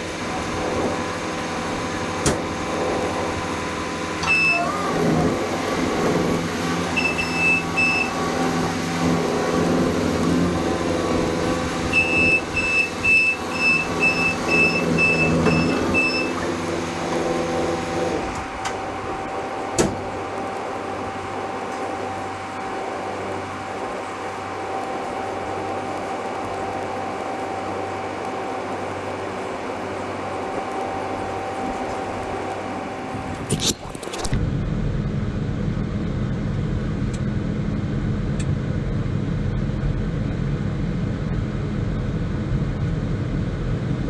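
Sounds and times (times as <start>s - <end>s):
diesel loader engine running: 0.0s - 44.0s
reverse alarm beeping: 4.2s - 4.8s, 6.9s - 8.2s, 11.9s - 16.4s.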